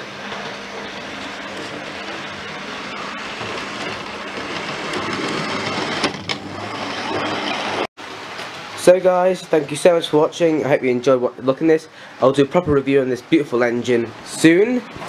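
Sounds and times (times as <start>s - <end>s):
model train whirring rumble: 0.0s - 7.9s.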